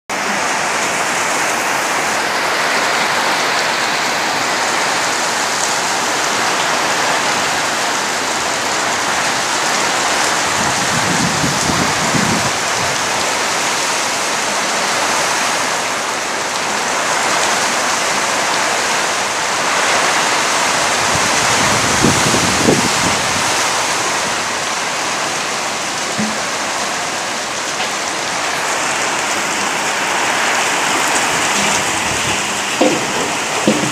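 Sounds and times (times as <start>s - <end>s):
heavy rain on metal roofs: 0.1s - 33.9s
low rumbles: 30.9s - 33.9s.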